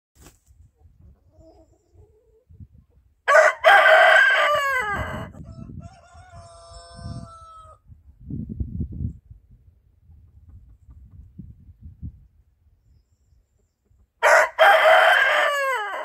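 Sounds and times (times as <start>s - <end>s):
distant rooster crowing: 3.3s - 7.8s, 14.2s - 16.0s
rooster crowing: 3.3s - 7.8s, 14.2s - 16.0s.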